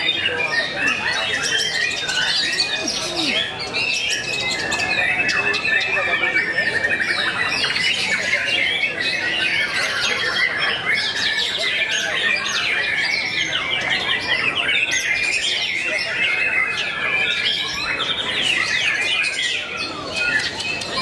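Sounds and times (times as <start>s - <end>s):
songbirds singing: 0.0s - 21.0s.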